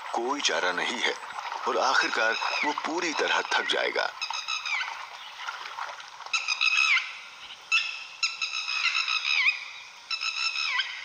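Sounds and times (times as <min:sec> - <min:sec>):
wild dogs whistling calls: 0:02.0 - 0:04.9.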